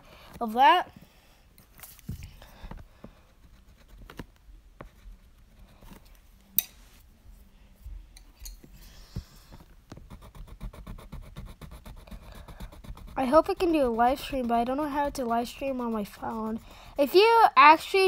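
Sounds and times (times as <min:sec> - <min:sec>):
pen scratching on card: 0:03.0 - 0:05.9, 0:08.9 - 0:17.0.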